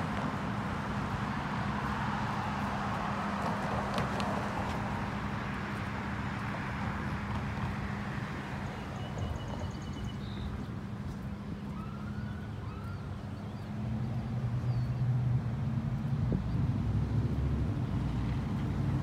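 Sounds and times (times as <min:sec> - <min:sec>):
road traffic engine hum: 0:00.0 - 0:19.0.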